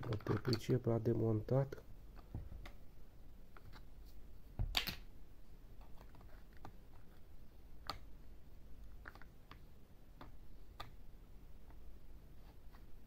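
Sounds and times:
plastic clatter: 0.0 - 0.7.

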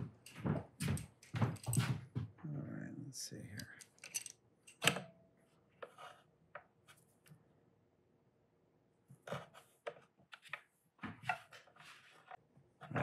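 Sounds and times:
metal parts and tools clicking: 3.6 - 5.1.

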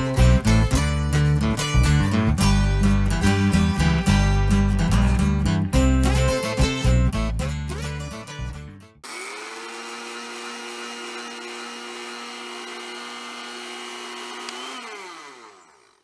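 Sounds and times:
electric blender running: 9.0 - 16.0.

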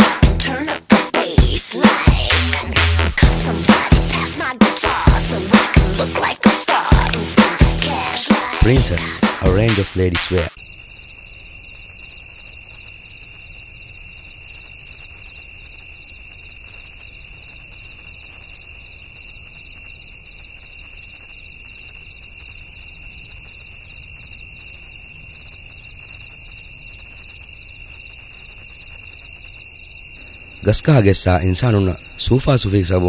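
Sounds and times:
electronic hiss: 10.5 - 33.0.

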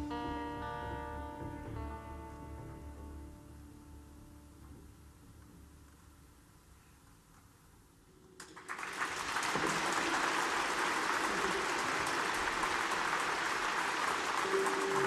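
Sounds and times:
audience applause: 8.4 - 15.0.

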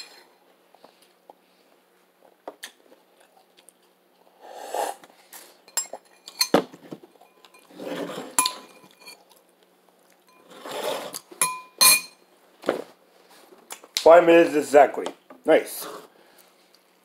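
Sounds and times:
person slurping: 4.3 - 5.1
ceramic bowl clinking: 7.2 - 9.2, 11.4 - 12.2.

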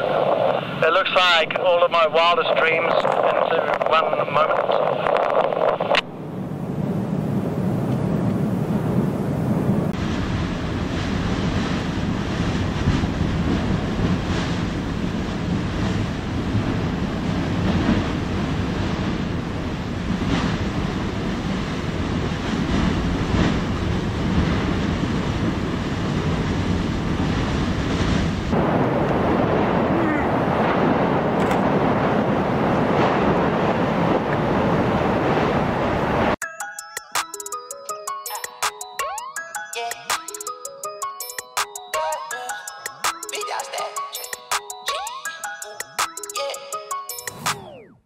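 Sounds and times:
wind on microphone: 0.0 - 0.8, 2.4 - 36.4
lava lake roaring: 0.0 - 36.4.

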